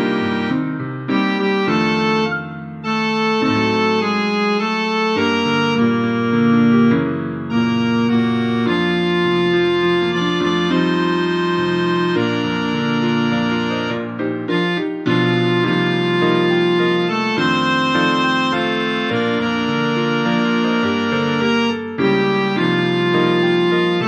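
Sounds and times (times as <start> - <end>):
organ playing hymn chords: 0.0 - 24.0
piano accompaniment: 0.0 - 24.0.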